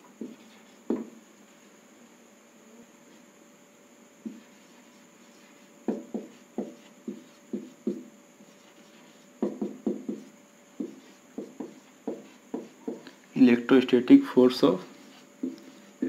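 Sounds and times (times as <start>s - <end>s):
marker writing on whiteboard: 0.2s - 1.1s, 4.2s - 13.2s, 14.8s - 16.0s.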